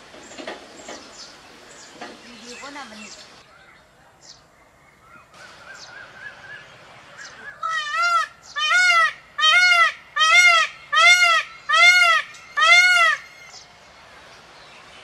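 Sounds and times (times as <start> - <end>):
peacock calling: 4.6 - 14.4.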